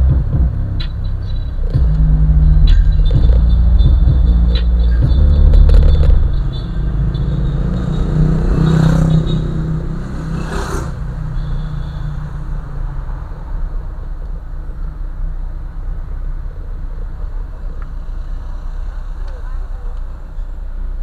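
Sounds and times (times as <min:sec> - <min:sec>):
car engine and road rumble: 0:00.0 - 0:21.0.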